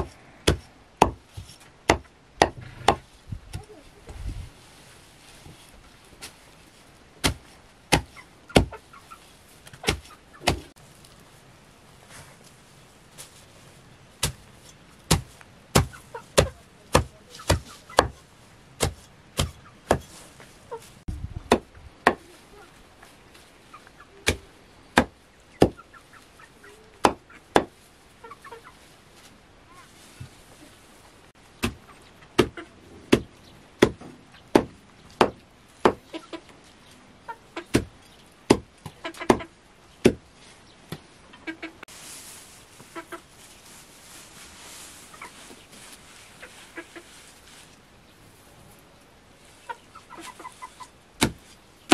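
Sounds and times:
hens clucking softly: 0:41.2 - 0:41.8, 0:49.6 - 0:51.0.

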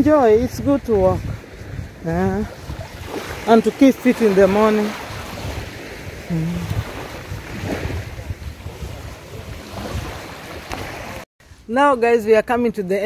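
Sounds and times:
surf on a sandy beach: 0:00.0 - 0:12.6
wind buffeting microphone: 0:00.0 - 0:12.6
person humming: 0:06.2 - 0:06.9.

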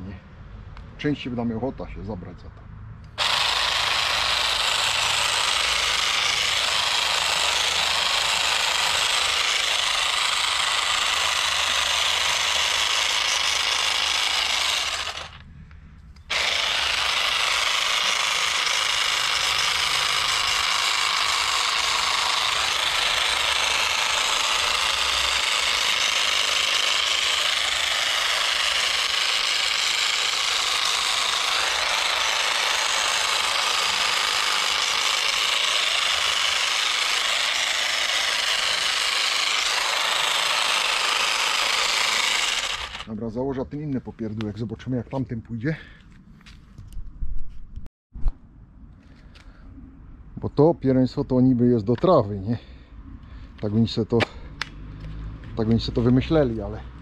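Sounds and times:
grass trimmer cutting weeds: 0:03.1 - 0:15.4, 0:16.2 - 0:43.2.

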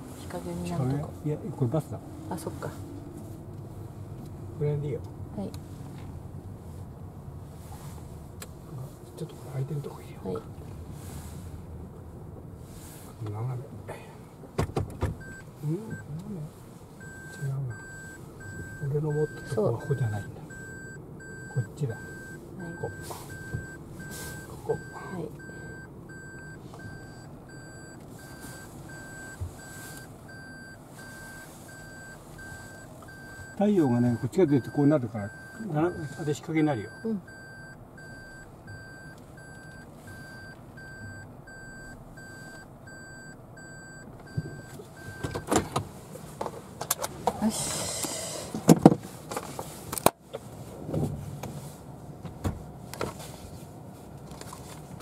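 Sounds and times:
car engine idling hum: 0:00.0 - 0:55.0
reverse warning chime beeping: 0:17.0 - 0:45.5.

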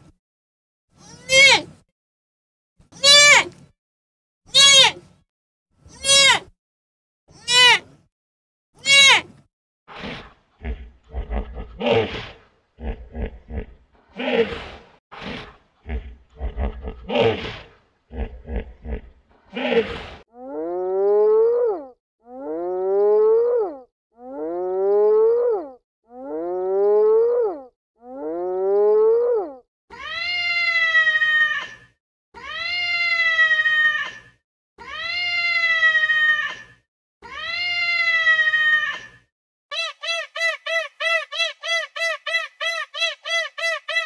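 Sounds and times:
animal grunts and snorts: 0:09.9 - 0:20.2
animal rising calls: 0:10.6 - 0:20.2.

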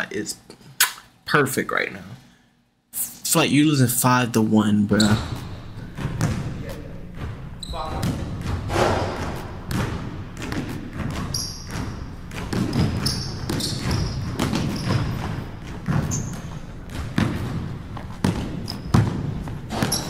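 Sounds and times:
sneaker squeaks: 0:04.9 - 0:20.0
basketball bouncing on wood floor: 0:05.1 - 0:20.0.

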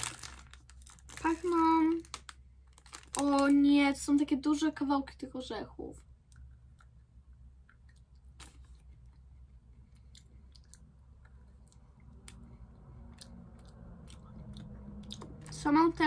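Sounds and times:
person chewing crunchy bar: 0:06.3 - 0:15.6.

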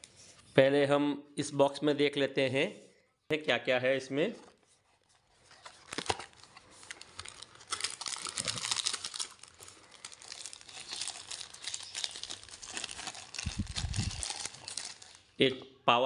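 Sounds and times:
packaging crinkling: 0:04.5 - 0:15.4.

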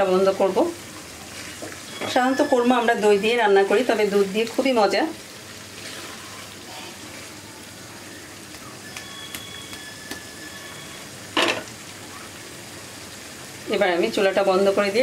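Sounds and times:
gravy sizzling and bubbling: 0:00.0 - 0:15.0
spatula stirring: 0:05.7 - 0:07.4.

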